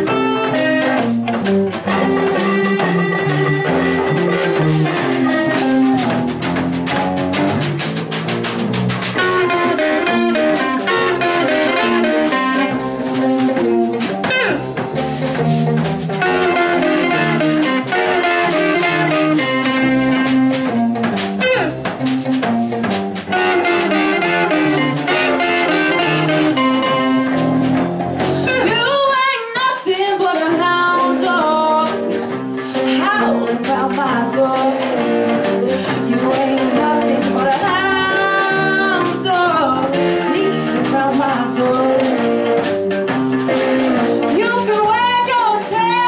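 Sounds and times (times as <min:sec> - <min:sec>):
electric guitar solo: 0:00.0 - 0:29.4, 0:30.2 - 0:46.0
bass guitar: 0:00.0 - 0:46.0
drum kit: 0:00.0 - 0:46.0
person singing: 0:14.2 - 0:14.8, 0:21.4 - 0:21.9, 0:28.5 - 0:42.6.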